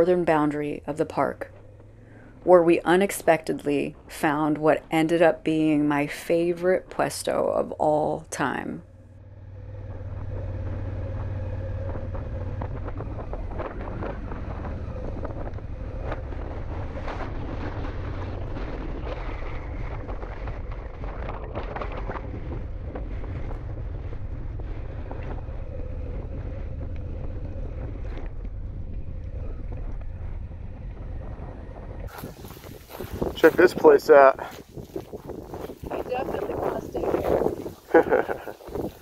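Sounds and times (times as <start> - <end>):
motorcycle engine running: 0.0 - 5.1, 6.8 - 39.0
wind noise on microphone: 12.6 - 39.0.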